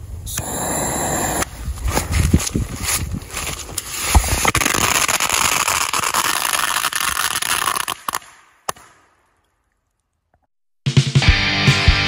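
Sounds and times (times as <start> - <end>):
firecracker strip crackling: 3.8 - 9.0.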